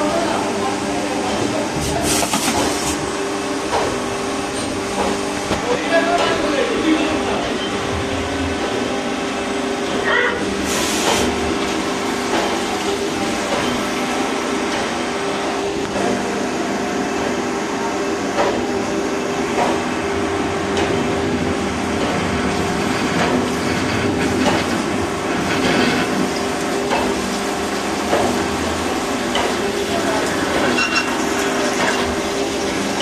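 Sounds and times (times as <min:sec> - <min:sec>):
coolant spraying and splashing: 0:00.2 - 0:06.9, 0:10.5 - 0:14.2, 0:22.3 - 0:33.0.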